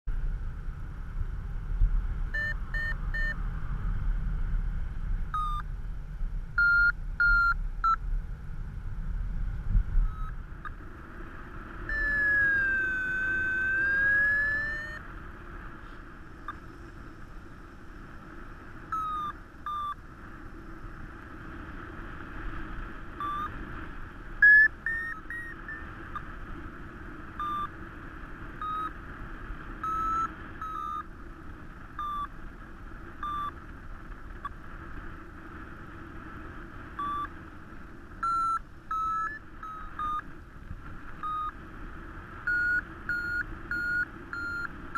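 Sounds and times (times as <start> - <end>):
wind rush on microphone: 0.1 - 44.9
variometer beeps: 2.3 - 3.4, 5.3 - 5.7, 6.6 - 8.0, 10.0 - 10.8, 11.8 - 15.2, 16.4 - 17.0, 18.8 - 20.0, 23.2 - 23.6, 24.4 - 26.3, 27.4 - 27.8, 28.5 - 29.0, 29.8 - 31.2, 31.9 - 32.4, 33.2 - 33.6, 34.4 - 34.6, 36.9 - 37.4, 38.2 - 40.3, 41.1 - 41.6, 42.4 - 44.9
variometer tone dipping and rising: 2.3 - 3.4, 5.3 - 5.7, 9.8 - 15.6, 18.8 - 20.0, 23.2 - 23.6, 24.4 - 26.3, 27.4 - 27.7, 28.6 - 29.0, 29.8 - 31.1, 37.0 - 37.3, 38.2 - 40.3, 41.2 - 41.6, 42.4 - 44.7.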